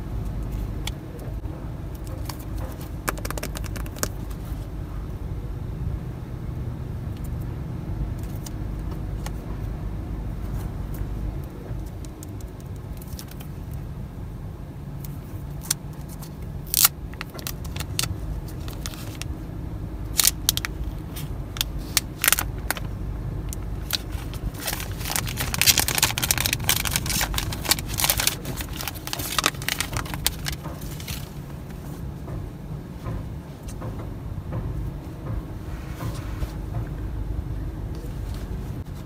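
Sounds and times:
low rumble: 0.0s - 39.0s
plastic packaging crinkling: 2.2s - 4.6s, 16.1s - 19.3s, 20.1s - 22.9s, 23.5s - 31.4s.

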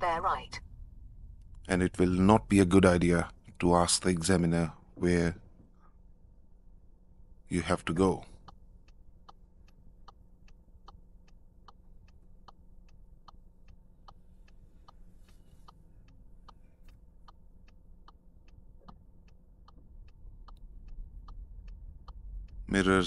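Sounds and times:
turn signal ticking: 8.3s - 23.0s.

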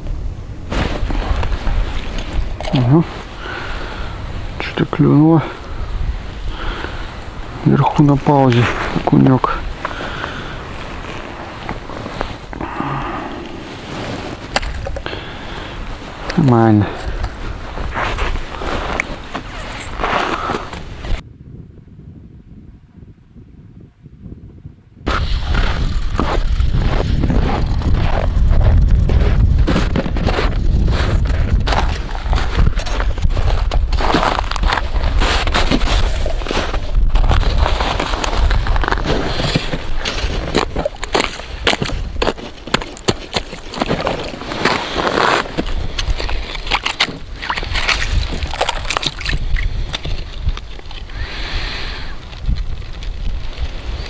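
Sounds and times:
wind rumbling on microphone: 0.0s - 54.0s
footsteps crunching through snow: 8.1s - 12.5s, 15.8s - 21.2s, 25.1s - 51.1s
water sloshing: 46.2s - 50.2s.

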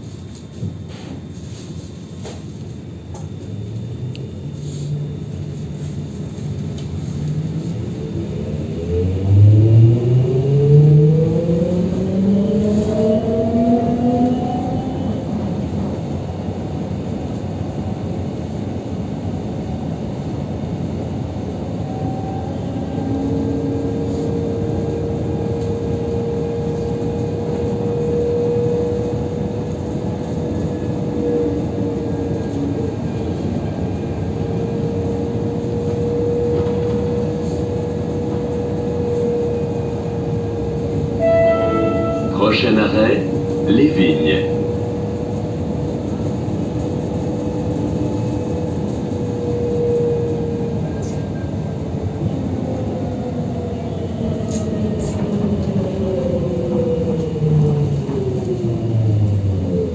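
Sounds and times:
tram electric drive whining: 0.0s - 59.9s.

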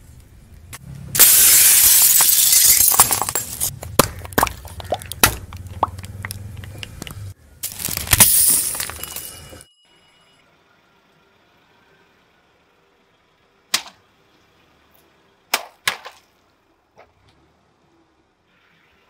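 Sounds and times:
plastic bottles crushed by tyre: 1.2s - 9.2s.

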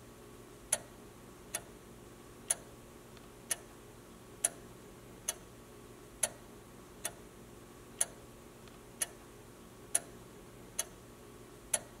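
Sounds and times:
faint steady hum: 0.0s - 12.0s
clock ticking: 3.5s - 3.7s, 6.2s - 6.4s, 9.9s - 10.1s, 10.8s - 11.0s, 11.7s - 12.0s.

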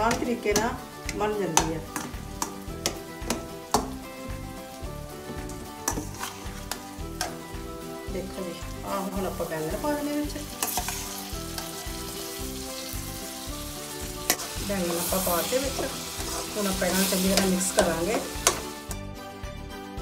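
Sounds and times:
masala sizzling in oil: 0.0s - 19.1s
steel spoon scraping steel bowl: 5.9s - 6.8s, 10.6s - 12.0s.

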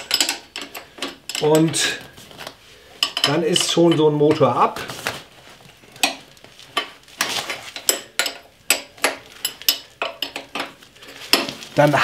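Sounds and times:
metallic clinks of metal parts: 0.0s - 2.0s, 3.0s - 4.0s.

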